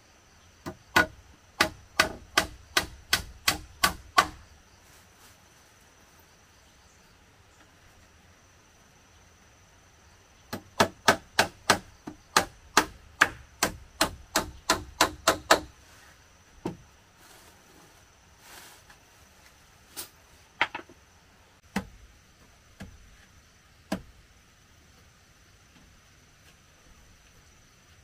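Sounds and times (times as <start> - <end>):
hand tool striking wood: 0.6 - 4.4, 10.5 - 15.7, 21.6 - 22.0.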